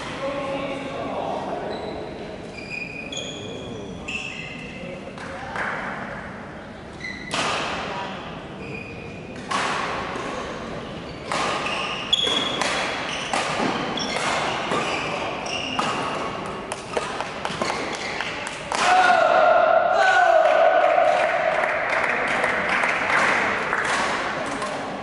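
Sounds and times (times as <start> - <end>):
shoes squeaking on court floor: 1.6 - 4.8, 8.6 - 9.4, 10.2 - 18.4
rackets striking shuttlecock: 9.3 - 10.4, 11.2 - 19.0.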